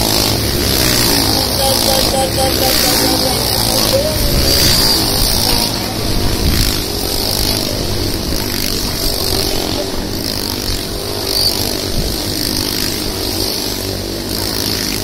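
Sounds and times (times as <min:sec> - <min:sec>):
motorcycle engines running: 0:00.0 - 0:15.0.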